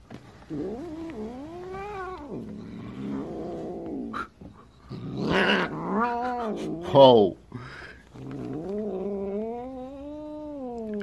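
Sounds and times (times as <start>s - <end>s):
cat growling: 0.4s - 11.0s
cat hissing: 0.5s - 6.9s
cat yowling: 5.2s - 6.8s.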